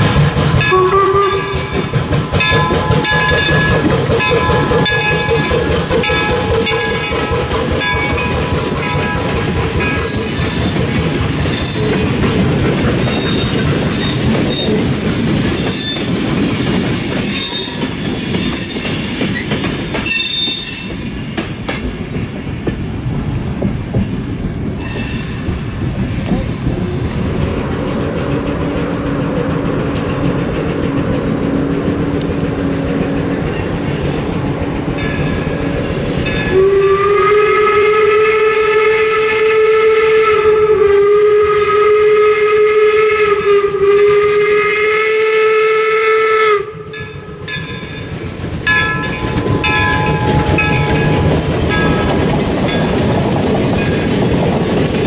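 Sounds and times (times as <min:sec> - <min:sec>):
wheels clattering on rails: 0:00.0 - 0:36.9, 0:46.7 - 0:55.0
train coaches rumbling past: 0:00.0 - 0:55.0
high-pitched wheel squeal: 0:24.8 - 0:27.2.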